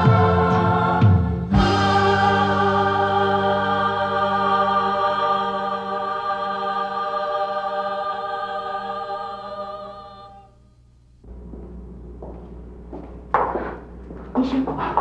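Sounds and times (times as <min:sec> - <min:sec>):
theme music long held chord: 0:00.0 - 0:10.5.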